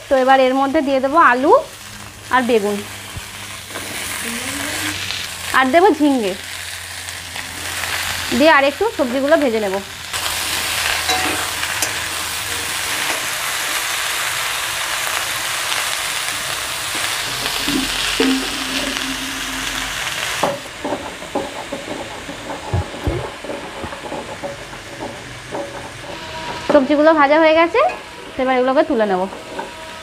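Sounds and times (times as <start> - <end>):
vegetables sizzling in oil: 0.0 - 30.0
stone grinding knocks and scrapes: 17.4 - 26.8.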